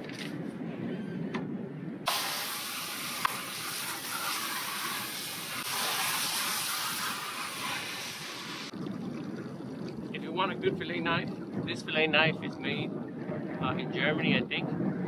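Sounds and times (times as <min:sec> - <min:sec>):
water spraying from hose nozzle: 0:02.1 - 0:08.7.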